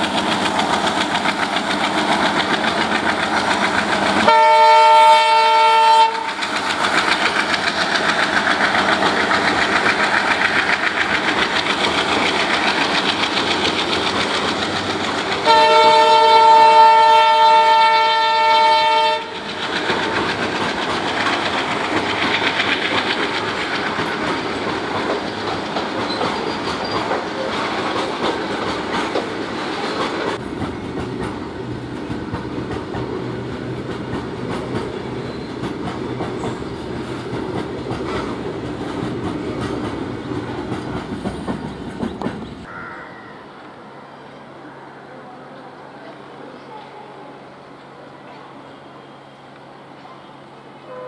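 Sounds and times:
train wheels clattering over rails: 0.0 - 42.7
locomotive horn chord: 4.2 - 6.3, 15.4 - 19.4.

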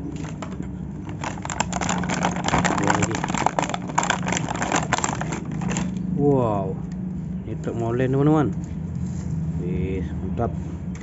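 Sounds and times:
plastic packaging crackling: 0.2 - 6.0.

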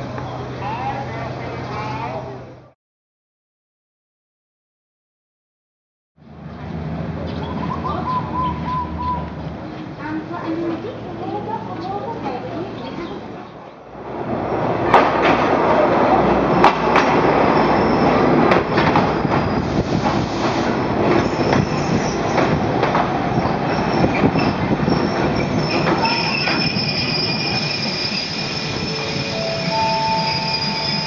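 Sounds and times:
train rolling past: 6.3 - 31.0
train brakes squealing: 17.4 - 22.3, 23.7 - 31.0.

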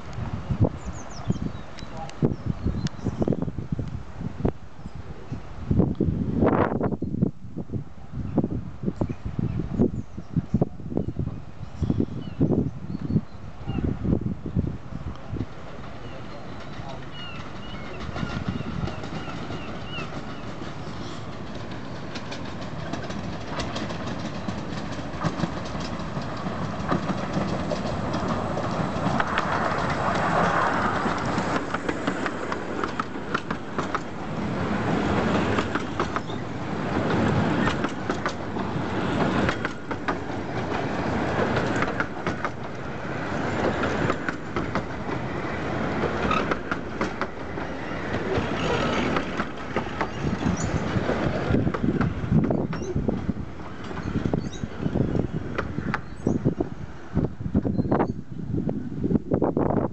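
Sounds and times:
steam locomotive passing: 13.4 - 59.9
train wheels clattering over rail joints: 16.6 - 56.3.

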